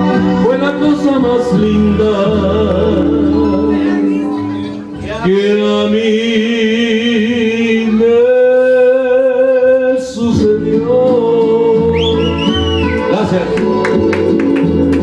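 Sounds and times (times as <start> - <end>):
karaoke backing music: 0.0 - 15.0
rising and falling whistle: 12.0 - 13.0.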